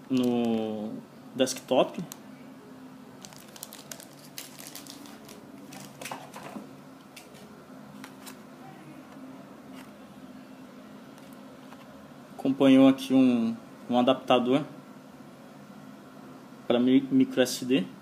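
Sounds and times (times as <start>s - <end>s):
plastic packaging crinkling: 0.0s - 0.7s, 3.2s - 6.6s.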